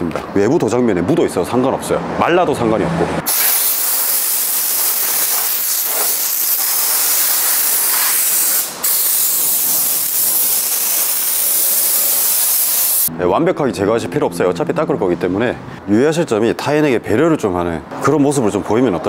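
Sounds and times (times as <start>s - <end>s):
compressed air blow gun hissing: 3.3s - 13.1s.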